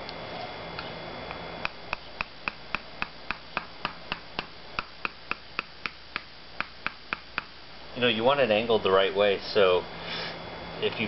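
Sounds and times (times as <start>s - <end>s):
mallet tapping on plastic pipe: 1.6s - 7.5s.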